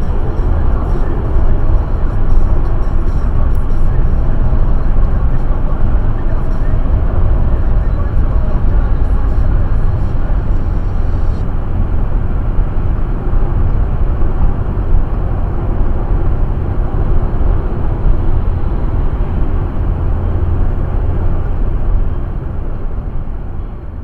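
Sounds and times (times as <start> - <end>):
car engine: 0.0 - 24.0
tyres rumbling on road: 0.0 - 24.0
wind noise: 0.0 - 24.0.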